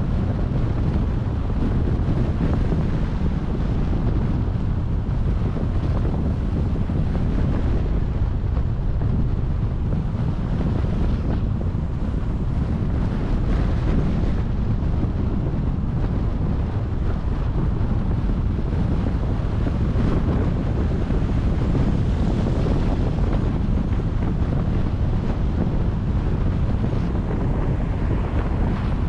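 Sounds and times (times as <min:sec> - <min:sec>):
road noise: 0:00.0 - 0:29.0
wind buffeting microphone: 0:00.0 - 0:29.0.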